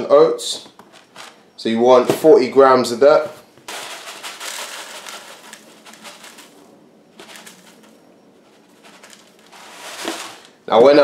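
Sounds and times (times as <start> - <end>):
oats pouring into plastic bowl: 3.7 - 6.6, 7.2 - 7.9, 8.8 - 10.6
cardboard box rustling: 7.2 - 7.8, 8.4 - 10.5.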